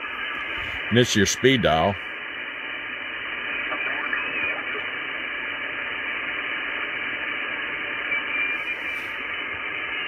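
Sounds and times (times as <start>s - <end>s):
radio static hiss: 0.0s - 10.0s
faint radio whistle: 3.4s - 4.9s, 7.2s - 10.0s.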